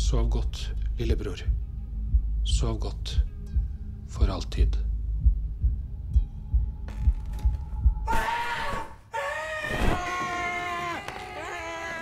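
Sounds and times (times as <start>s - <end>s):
heartbeat thumps: 1.0s - 8.2s
long drawn-out scream: 8.1s - 12.0s.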